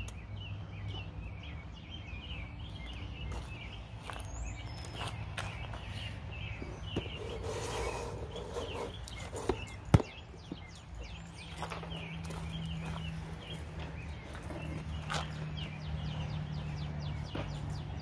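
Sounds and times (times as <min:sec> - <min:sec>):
birds chirping: 0:00.0 - 0:18.0.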